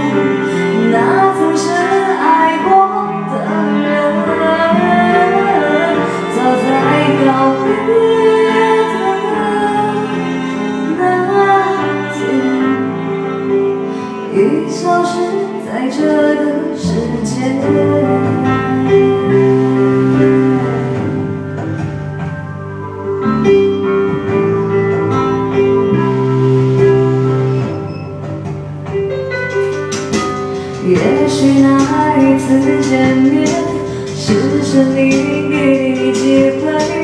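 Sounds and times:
woman singing into a microphone: 0.0 - 13.2, 13.9 - 21.4, 30.6 - 37.0
recorded backing music: 0.0 - 37.0.

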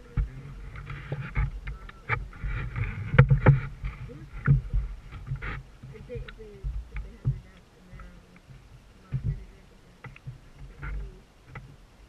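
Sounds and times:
paddle splashing water: 0.0 - 12.0
sharp knocks on canoe: 0.2 - 8.1.

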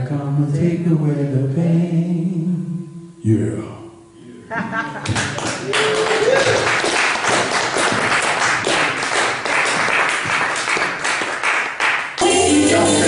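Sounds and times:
audience applauding: 5.0 - 12.3.

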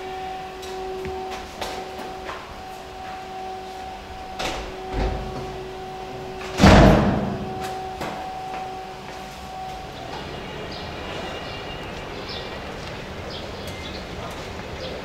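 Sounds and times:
steady hum: 0.0 - 15.0
door slamming: 4.3 - 8.3.

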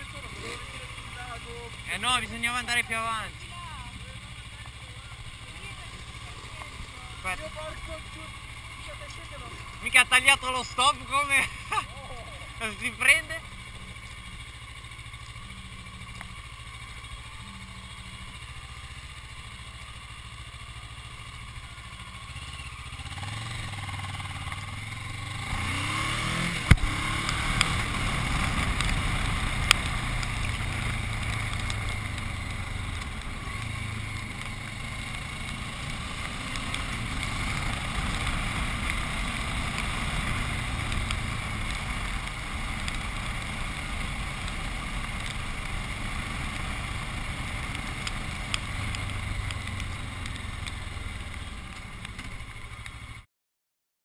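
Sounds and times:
motorcycle engine: 0.0 - 53.3
sharp clicks: 26.6 - 45.4, 47.6 - 53.0.

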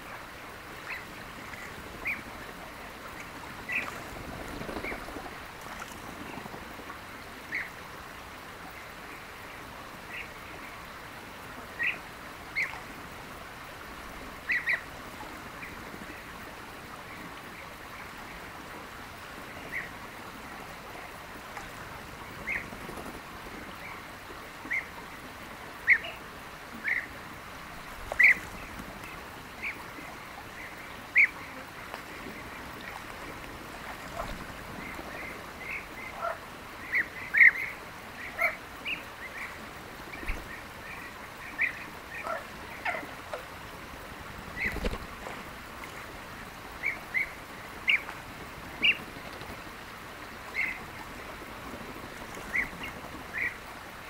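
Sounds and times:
birds making rolling calls: 0.7 - 6.8, 20.8 - 24.1.

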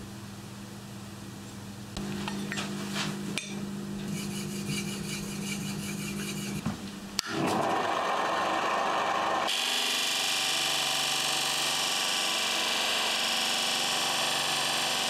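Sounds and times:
low hum: 2.0 - 7.3
blade scraping on sharpening stone: 4.0 - 6.6
grinder wheel whirring: 4.0 - 15.0.

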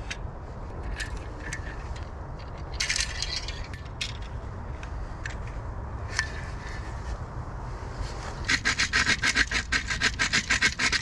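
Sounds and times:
saw frame clicking and rattling: 0.8 - 4.4, 8.4 - 11.0
metallic jangling: 2.6 - 4.3.

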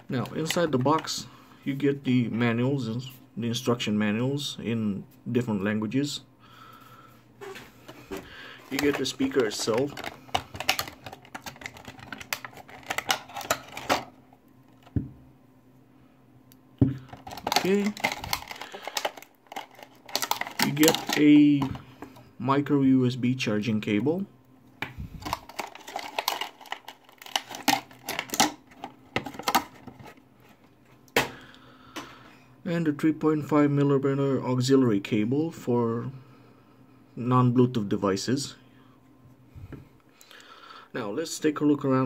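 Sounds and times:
packaging rustling: 7.4 - 15.0, 16.9 - 22.2, 24.9 - 30.7
cardboard box being unpacked: 17.1 - 21.2, 25.2 - 30.2.

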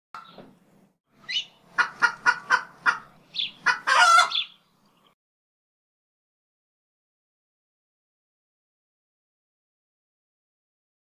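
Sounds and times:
chicken clucking: 1.3 - 4.5.

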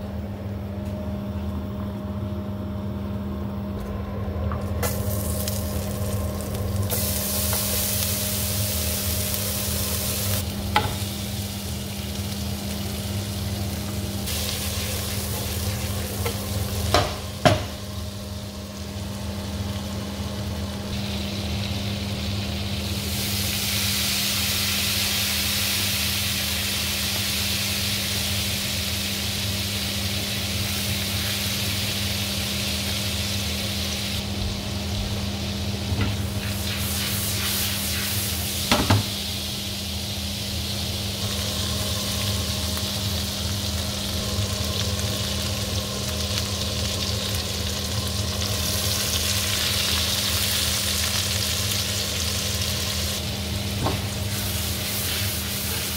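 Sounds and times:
steady low hum: 0.0 - 25.4
garlic sizzling in a frying pan: 4.8 - 55.9.

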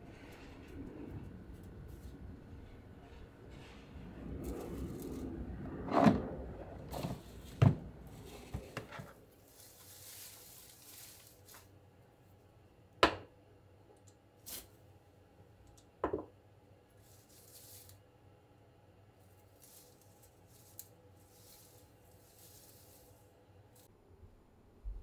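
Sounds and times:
leaves rustling: 7.2 - 11.8, 17.0 - 18.0, 19.3 - 23.9.

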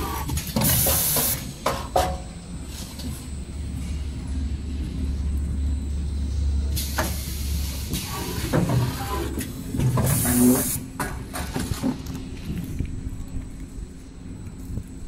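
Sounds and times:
compressed-air hiss: 0.0 - 1.5, 6.8 - 9.2, 10.0 - 10.8.

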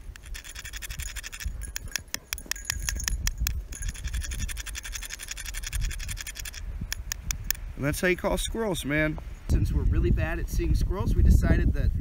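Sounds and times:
coins scratching and clicking: 0.0 - 7.2.

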